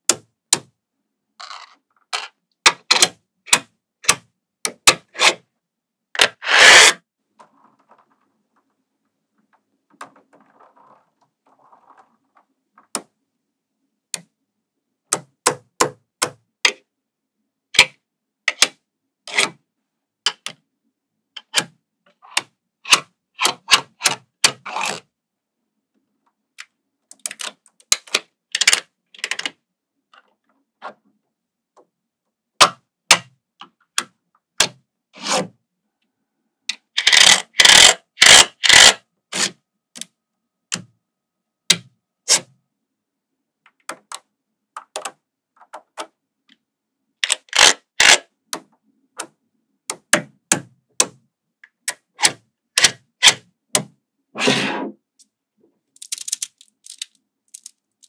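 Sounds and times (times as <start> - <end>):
magnetic balls clicking: 56.0 - 58.0.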